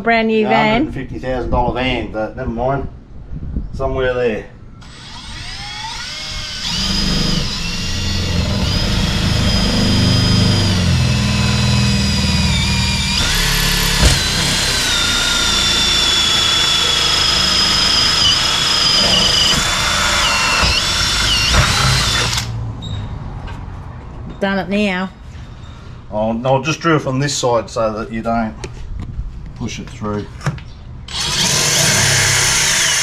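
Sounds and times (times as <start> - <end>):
cordless drill boring through panel: 4.8 - 22.6, 31.1 - 33.0
sharp knock: 13.9 - 14.5.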